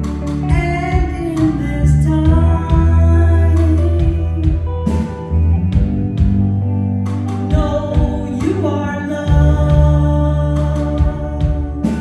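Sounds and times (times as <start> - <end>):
deep bass line: 0.0 - 12.0
reggae band playing: 0.0 - 12.0
woman singing into a microphone: 0.3 - 5.2, 7.4 - 12.0
drum kit hits: 4.0 - 8.5.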